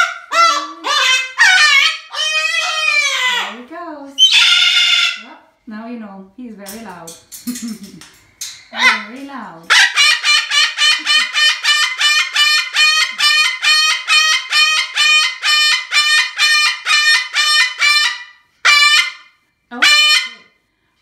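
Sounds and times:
cockatoo screaming: 0.0 - 3.6, 4.2 - 5.3.

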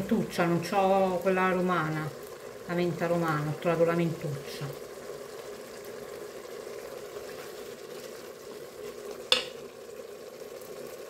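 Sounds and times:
food sizzling in a pot: 0.0 - 11.0
wooden spoon stirring: 6.6 - 9.6
spoon knocking against pot: 9.3 - 9.6.

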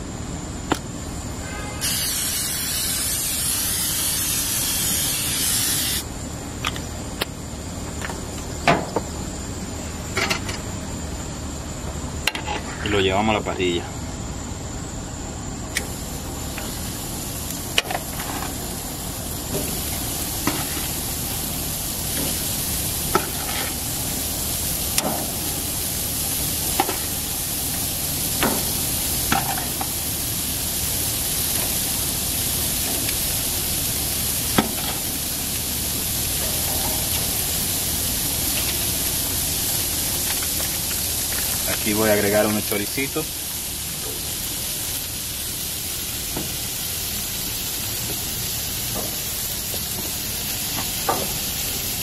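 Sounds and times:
meat sizzling on a grill: 1.8 - 6.2, 15.4 - 52.0.

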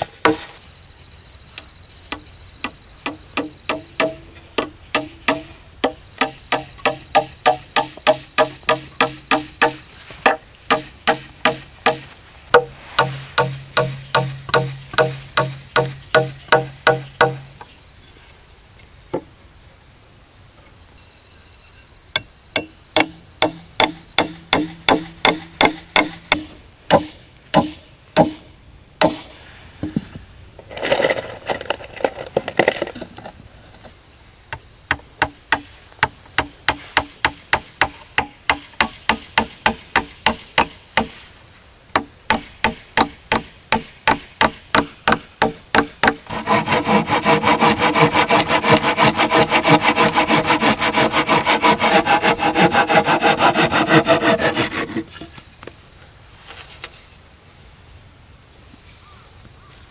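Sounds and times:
blade chopping wooden slat: 42.0 - 55.2.

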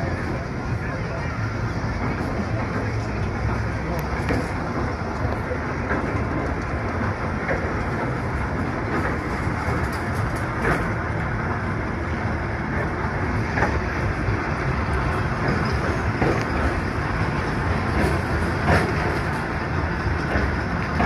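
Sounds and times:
railway car rumble: 0.0 - 21.0
wheels clicking on rails: 0.0 - 21.0.

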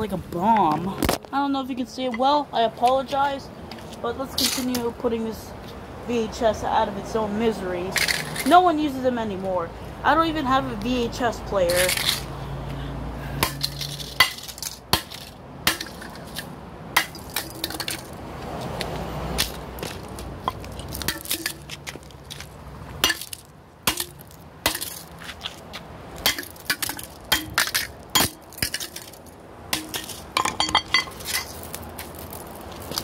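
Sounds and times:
plastic pieces clattering on concrete: 13.5 - 18.2, 26.3 - 33.0.

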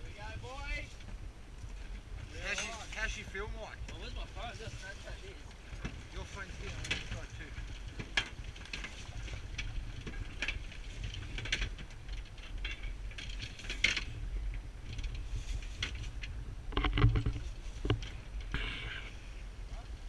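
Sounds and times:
wind rumble: 0.0 - 20.0
sharp clicks and knocks: 15.8 - 18.7.

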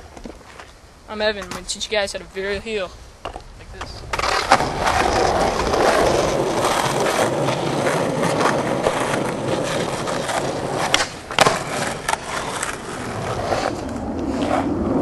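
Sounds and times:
skateboard wheels rolling on asphalt: 0.0 - 15.0
skateboard landing clack: 3.2 - 13.1
skateboard tail pop: 10.9 - 11.7.

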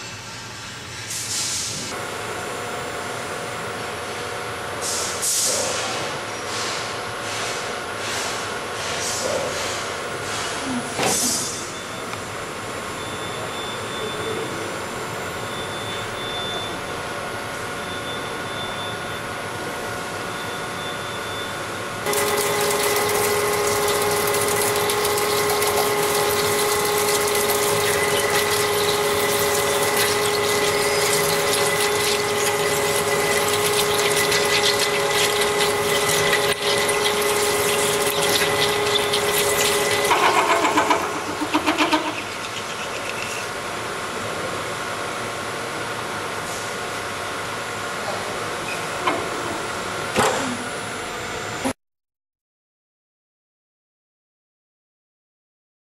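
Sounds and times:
cutter whining into steel: 22.0 - 43.5
drilling machine humming: 22.0 - 44.0
coolant spraying: 22.1 - 43.6.

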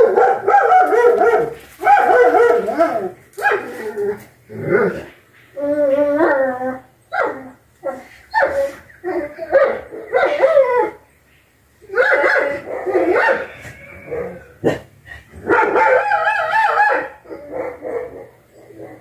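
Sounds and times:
animal crying out: 11.8 - 14.8.

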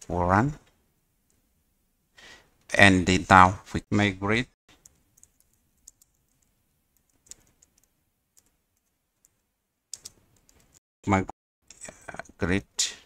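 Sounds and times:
computer keyboard typing: 4.8 - 10.8.

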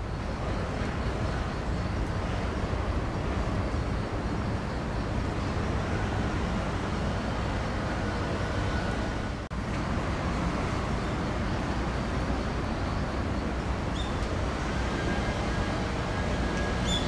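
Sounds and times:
distant road traffic hum: 0.0 - 17.0
faint high chirp: 13.9 - 14.2, 16.6 - 17.0.

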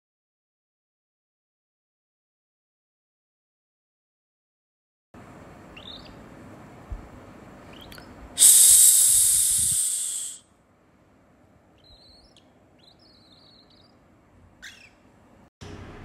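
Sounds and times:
soft bird chirps: 5.7 - 6.3, 7.6 - 10.4, 11.7 - 14.0, 14.6 - 15.1
cockatiel hissing: 8.4 - 10.4
short bird call: 8.4 - 10.4.

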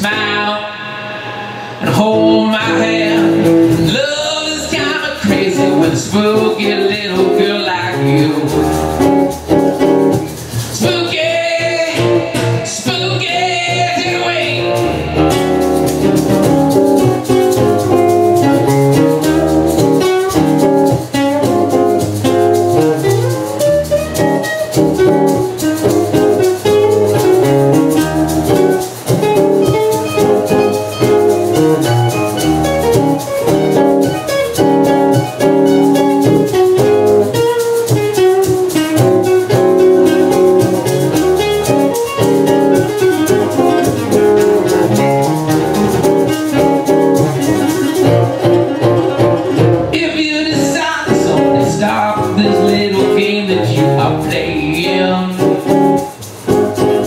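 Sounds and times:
acoustic guitars strumming: 0.0 - 57.0.

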